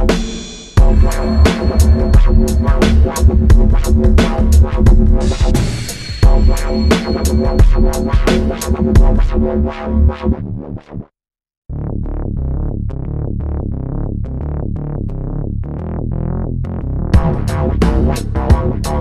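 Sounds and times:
synthesizer notes: 0.8s - 11.0s
electronic music: 0.8s - 11.1s, 17.2s - 19.0s.

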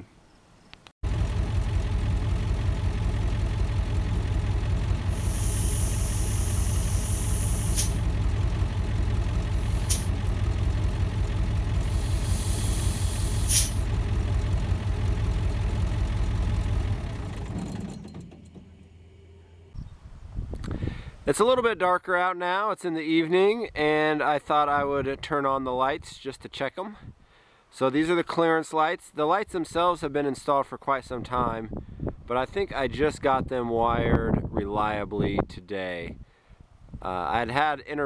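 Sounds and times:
diesel truck engine idling: 1.0s - 19.8s
air brake hissing: 5.0s - 8.1s, 9.6s - 10.2s, 11.8s - 13.9s.

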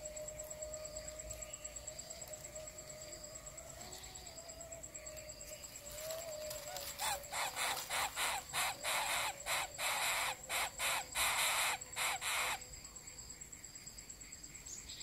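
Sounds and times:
nestlings hissing rasps: 6.9s - 12.6s.

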